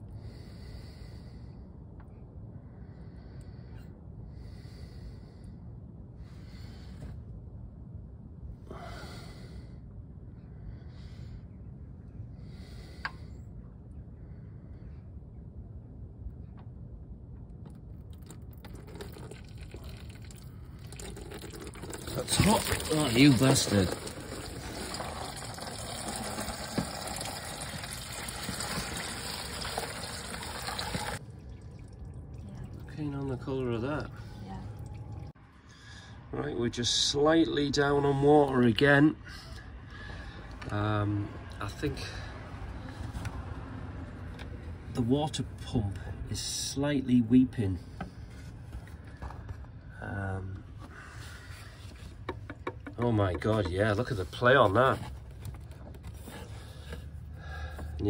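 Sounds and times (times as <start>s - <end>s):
low steady rumble: 0.0s - 58.0s
person breathing: 0.1s - 1.7s, 2.6s - 7.2s, 35.6s - 36.3s, 39.2s - 40.6s, 50.7s - 52.0s, 56.2s - 58.0s
oil pouring in a stream: 17.7s - 35.4s.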